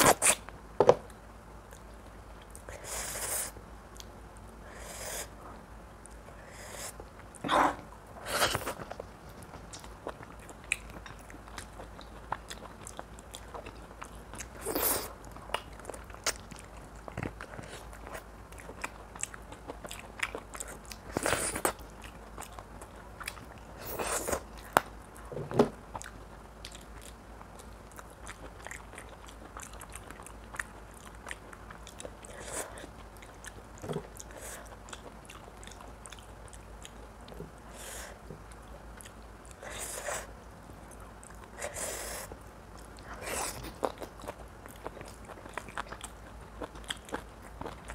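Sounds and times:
close chewing and biting: 8.2s - 25.3s, 25.9s - 37.6s, 40.8s - 47.9s.

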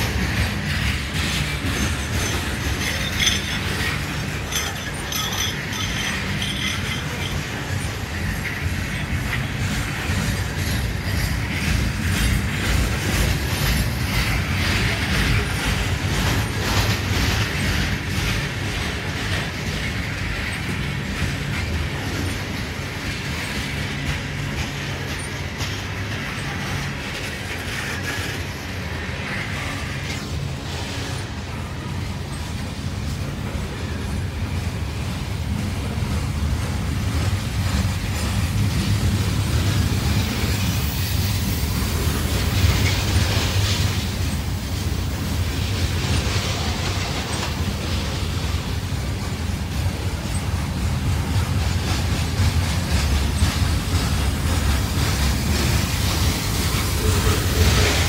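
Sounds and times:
freight train wheels rumbling: 0.0s - 58.0s
high wheel squeal: 0.1s - 12.2s.

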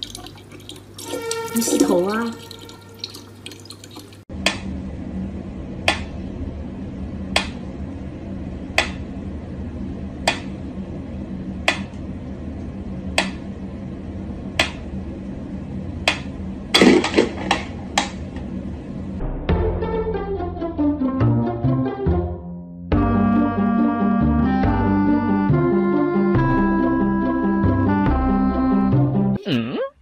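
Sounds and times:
steady low hum: 4.3s - 19.5s.

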